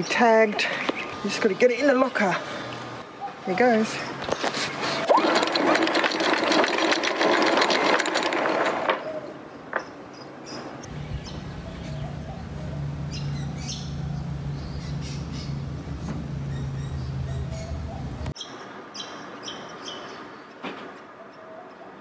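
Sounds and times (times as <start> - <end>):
anchor chain rattling: 5.0 - 9.3
steady low hum: 10.9 - 18.4.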